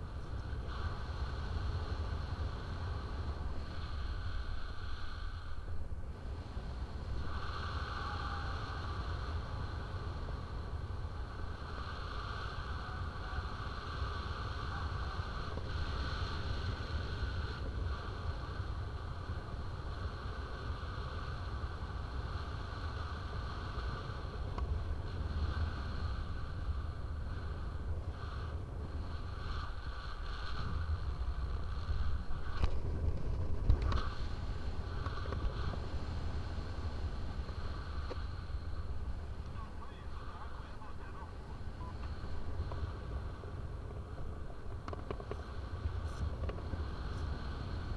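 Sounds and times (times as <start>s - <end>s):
wind rushing over microphone: 0.0s - 47.9s
deep rumble: 23.4s - 47.9s.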